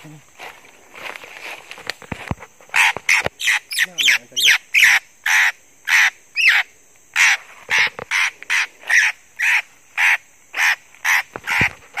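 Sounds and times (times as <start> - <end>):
harsh rasping bird calls: 2.7 - 12.0.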